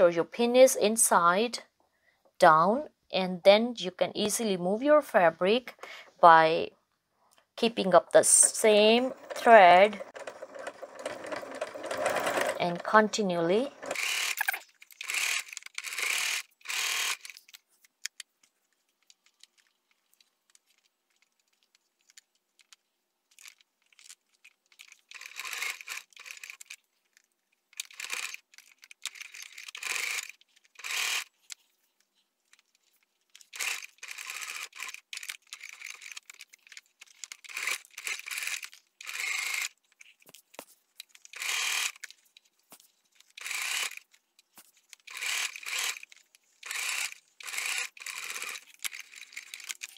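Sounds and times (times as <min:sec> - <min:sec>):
sewing machine stitching: 0:08.3 - 0:17.4, 0:25.1 - 0:26.7, 0:45.0 - 0:49.9.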